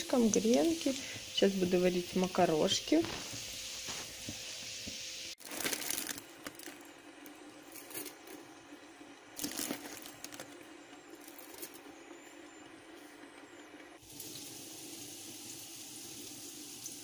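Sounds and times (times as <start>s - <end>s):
food sizzling in a frying pan: 0.0s - 5.5s, 14.0s - 17.0s
foil packets crinkling: 5.4s - 6.8s, 9.4s - 10.6s.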